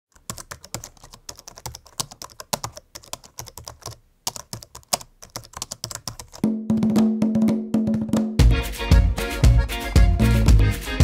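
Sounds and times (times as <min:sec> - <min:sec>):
fast typing on keyboard: 0:00.1 - 0:06.4.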